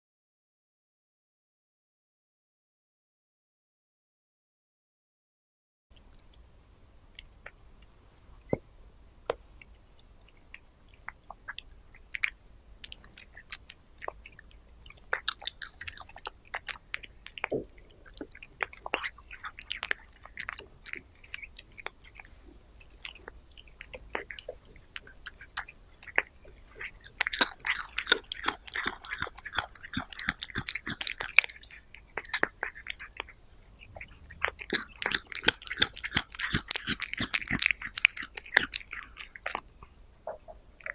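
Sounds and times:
cat chewing meat: 9.3 - 40.0.

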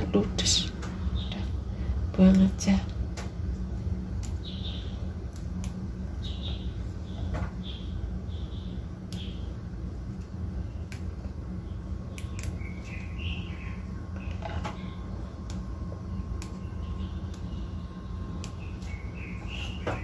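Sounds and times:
low hum: 0.0 - 20.0
basil leaves snapping: 3.1 - 5.9, 10.2 - 11.3, 12.1 - 13.2
faint bird chirps: 16.1 - 20.0.

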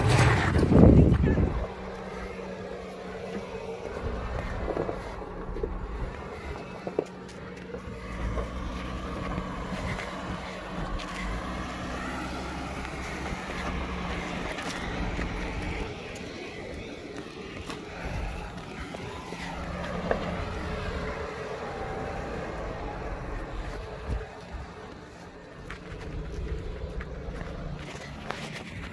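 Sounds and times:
car engine at low revs: 0.0 - 28.9.

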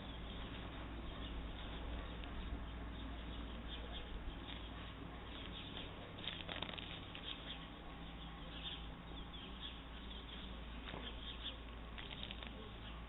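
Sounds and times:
dry grass rustling: 4.4 - 7.5.

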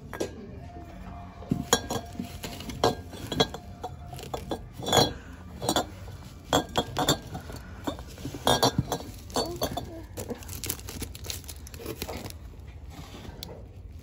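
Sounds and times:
bubble wrap rustling: 1.5 - 14.0
glass clinking together: 1.7 - 9.9.

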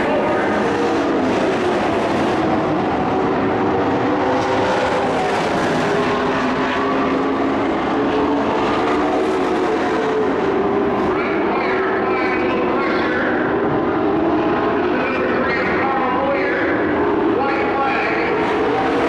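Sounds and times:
race truck engines droning: 0.0 - 19.0.

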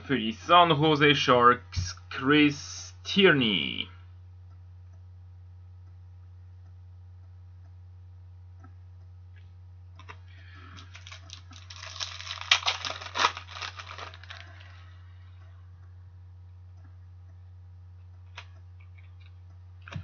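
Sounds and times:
low hum: 0.0 - 20.0
wrapper tearing and crinkling: 10.8 - 14.7.

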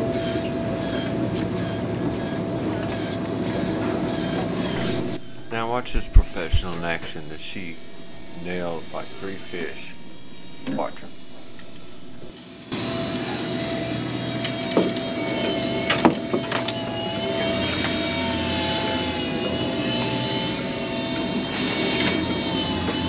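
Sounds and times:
boat engines droning: 4.8 - 12.3.

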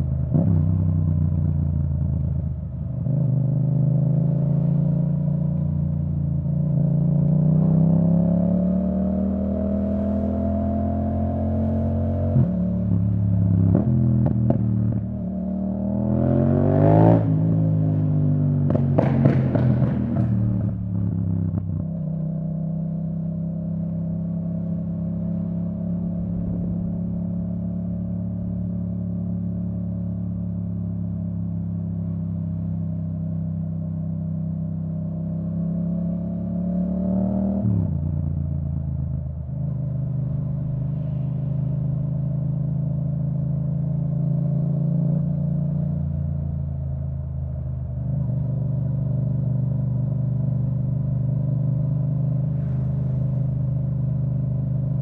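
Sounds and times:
motorcycle engine revving: 6.8 - 21.9.

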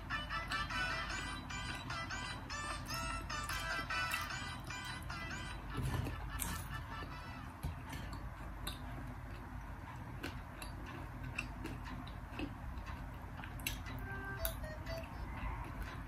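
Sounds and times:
low steady hum: 0.0 - 16.0
chewing: 7.9 - 14.0.

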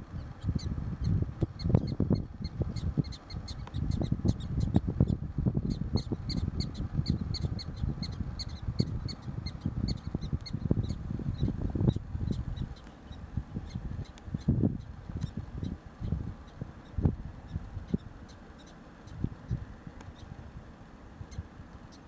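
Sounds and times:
wind buffeting microphone: 0.0 - 18.4, 19.0 - 22.0
animal high chirping calls: 5.7 - 14.5.

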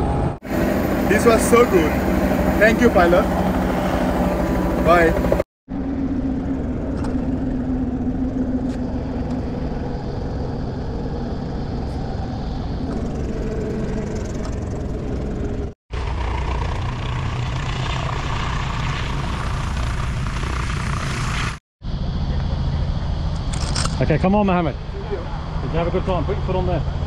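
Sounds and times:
helicopter engine and rotor humming: 0.0 - 27.0.

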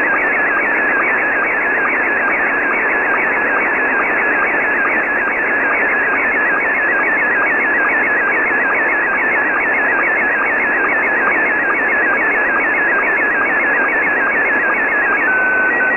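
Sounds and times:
warbling image signal tone: 10.3 - 15.9
radio band static: 12.6 - 15.9.

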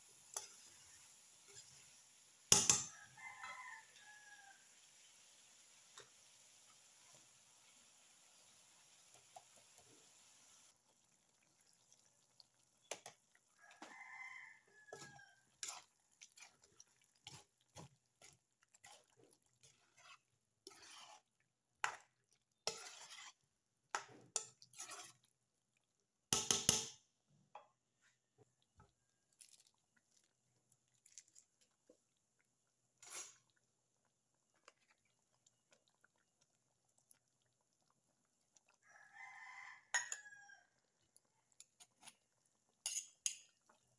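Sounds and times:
metal ladle scraping a wok: 0.2 - 4.2, 19.6 - 21.3, 22.6 - 23.4, 24.4 - 25.2
chicken calling faintly: 2.8 - 5.0, 12.8 - 15.6, 38.7 - 41.0.

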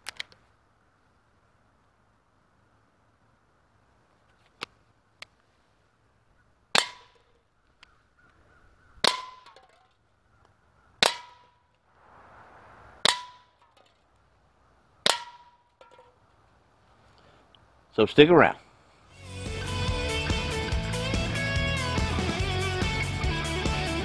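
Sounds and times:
pellet pistol firing: 6.8 - 7.3, 9.0 - 9.9, 11.0 - 11.6, 13.0 - 13.8, 15.1 - 16.1
pellet striking metal can: 6.8 - 7.3, 9.0 - 9.9, 11.0 - 11.6, 13.0 - 14.0, 15.1 - 16.2
faint clicks: 7.2 - 8.5.

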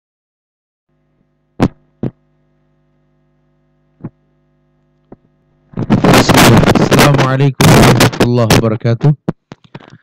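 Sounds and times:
faint mains hum: 0.9 - 10.0
microphone handling knocks: 1.6 - 2.2, 4.0 - 4.2, 5.1 - 10.0.

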